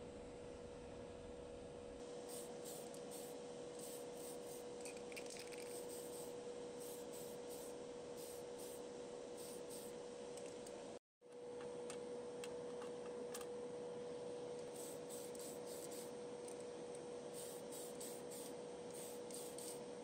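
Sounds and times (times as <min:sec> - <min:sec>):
extraction fan humming: 0:00.0 - 0:20.0
spray bursts of hiss: 0:02.2 - 0:04.6, 0:17.4 - 0:19.8.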